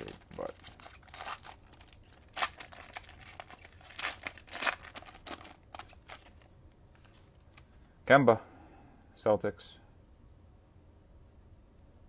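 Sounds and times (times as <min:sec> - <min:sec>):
foil wrapper crinkling and tearing: 0:00.0 - 0:07.6.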